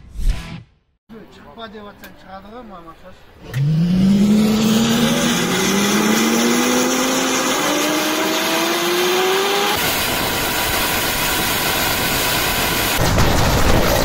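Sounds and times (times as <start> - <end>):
engine and rotor rush: 3.4 - 14.0
helicopter turbine engines whining: 3.5 - 14.0.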